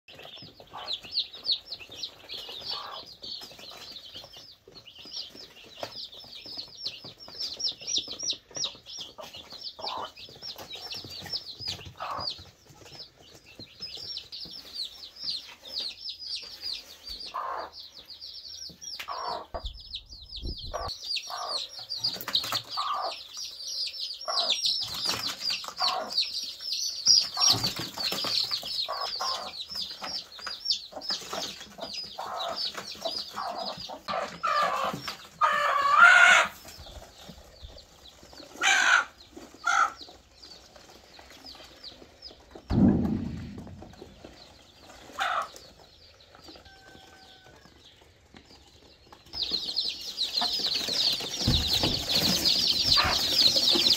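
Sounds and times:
hen clucking: 0.1 - 3.4, 6.9 - 13.0, 14.4 - 28.1, 28.7 - 40.5, 41.2 - 47.7, 49.8 - 53.9
chicks peeping: 0.1 - 53.9.

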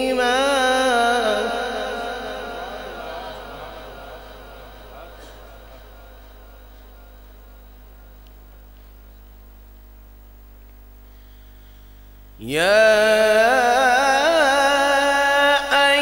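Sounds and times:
man reciting melodically: 0.0 - 7.7, 12.4 - 16.0
mains hum: 0.0 - 16.0.

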